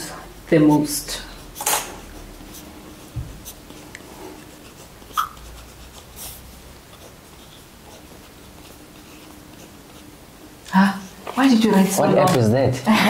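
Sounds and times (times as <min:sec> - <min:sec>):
pen scratching on paper: 0:00.5 - 0:10.2.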